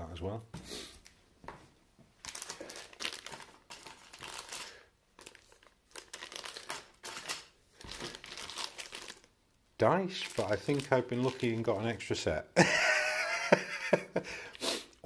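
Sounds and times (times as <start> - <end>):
plastic bags crinkling: 2.2 - 9.4, 10.0 - 12.1.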